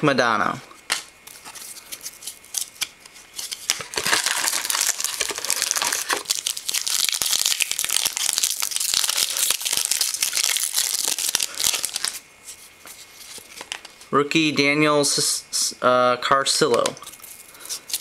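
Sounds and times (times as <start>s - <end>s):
foil pack crinkling and tearing: 1.3s - 12.2s, 17.0s - 18.0s.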